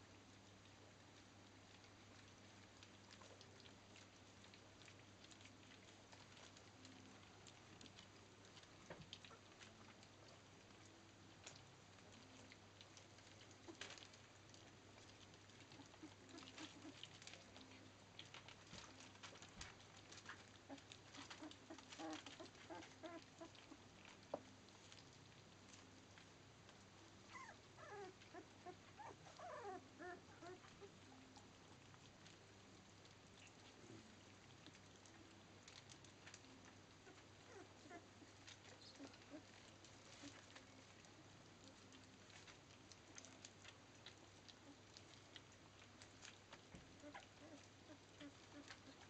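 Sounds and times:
puppies lapping food: 0.1s - 49.0s
puppies whimpering and squealing: 15.6s - 17.4s, 20.7s - 23.8s, 27.3s - 31.3s, 37.0s - 40.7s, 47.0s - 49.0s.

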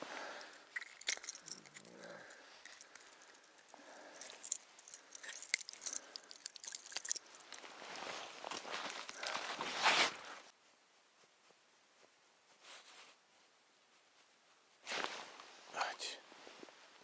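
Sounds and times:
hands handling gear: 0.4s - 10.2s.

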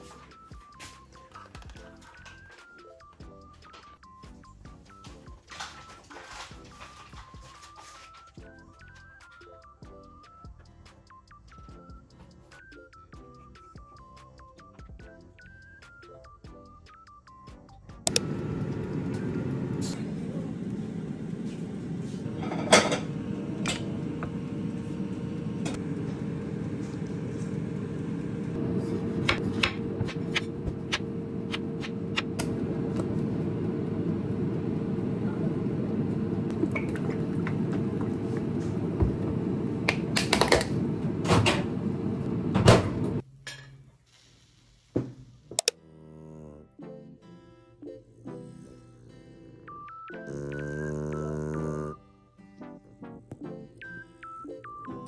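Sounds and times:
low hum with held tone: 18.1s - 44.0s
clinks of bottles and dishes: 22.4s - 23.1s.

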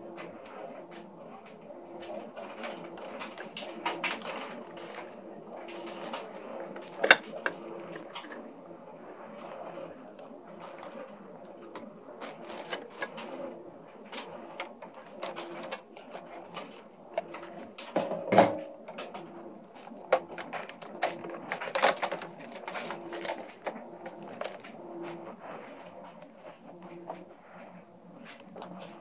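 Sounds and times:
plastic wrapping crinkling: 10.6s - 13.3s, 18.8s - 24.8s.

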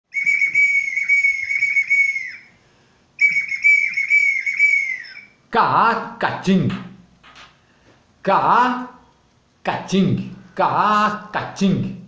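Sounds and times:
small whistle blown: 0.1s - 2.6s, 3.2s - 5.4s
man's voice: 5.5s - 7.0s, 8.2s - 9.0s, 9.6s - 12.0s.

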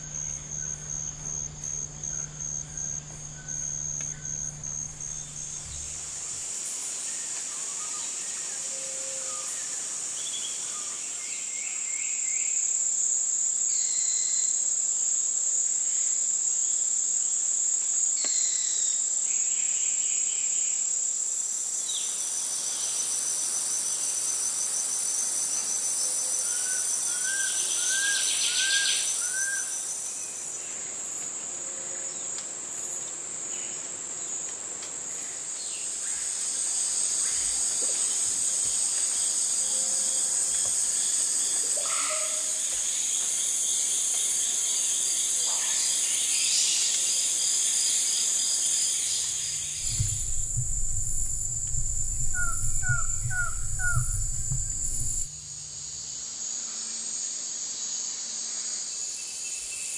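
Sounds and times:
insects droning: 0.0s - 59.9s
bird calls: 49.2s - 55.3s.

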